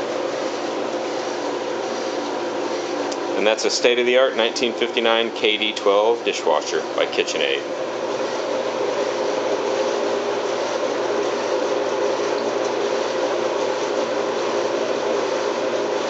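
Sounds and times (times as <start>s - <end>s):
dishwasher humming and hissing: 0.0s - 16.0s.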